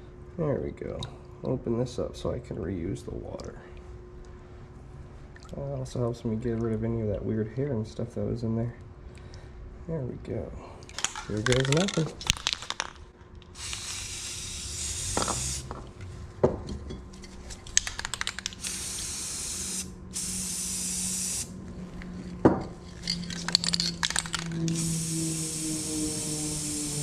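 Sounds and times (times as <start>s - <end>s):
clicks and rattles: 10.9s - 13.5s, 17.5s - 18.6s, 22.9s - 24.8s
spray paint can hissing: 11.1s - 12.9s, 13.5s - 15.8s, 17.8s - 21.5s, 23.0s - 27.0s.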